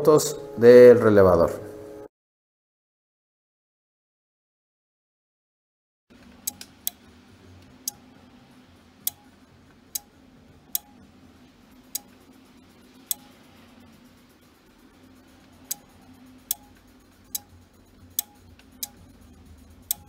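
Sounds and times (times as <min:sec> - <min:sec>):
amplifier relay clicking: 0:06.2 - 0:07.0, 0:09.0 - 0:09.2, 0:10.7 - 0:10.9.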